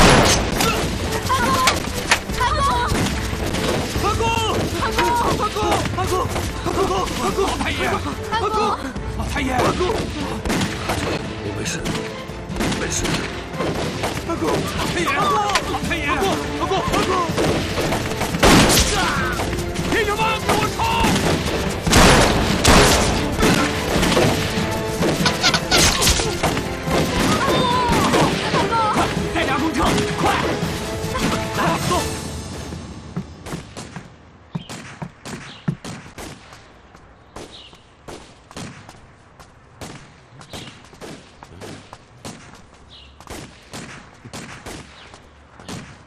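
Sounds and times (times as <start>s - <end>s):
background music: 0.0s - 34.5s
distant gunshots echoing: 20.6s - 28.4s.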